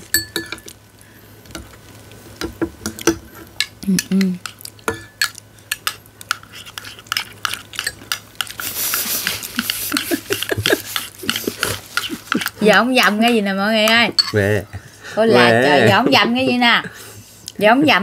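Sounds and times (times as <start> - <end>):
spoon clinking against a bowl: 0.1 - 0.7, 3.0 - 9.0, 12.0 - 14.4.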